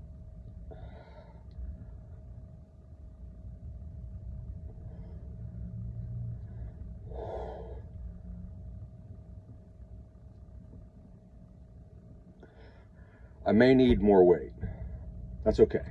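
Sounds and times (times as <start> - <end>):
low rumble: 0.0 - 15.9.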